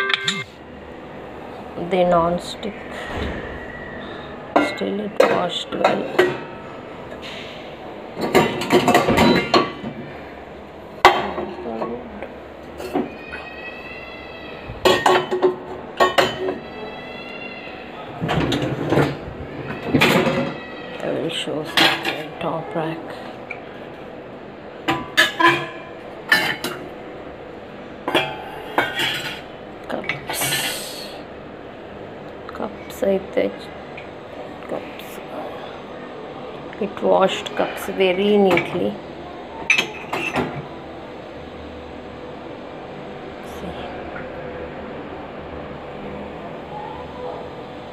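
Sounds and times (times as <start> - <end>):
dishes rattling in wire rack: 8.2 - 10.0, 24.9 - 26.8
pots and pans clattering: 8.2 - 10.0, 14.8 - 16.6, 21.6 - 22.3, 24.8 - 26.9, 28.1 - 30.9, 39.6 - 40.7.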